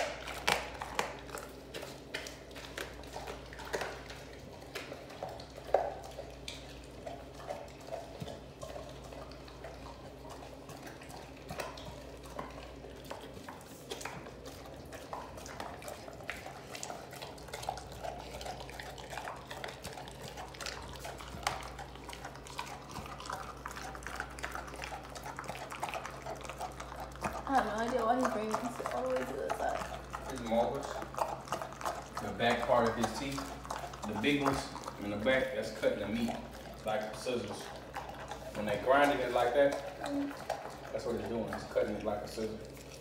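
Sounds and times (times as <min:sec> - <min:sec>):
dog chewing with wet smacking: 0:00.0 - 0:43.0
teeth clicking on bone: 0:00.0 - 0:43.0.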